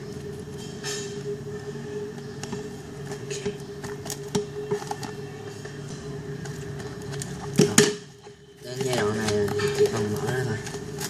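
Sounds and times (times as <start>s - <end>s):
steady low hum: 0.0s - 11.0s
paper rustling and crackling: 2.2s - 11.0s.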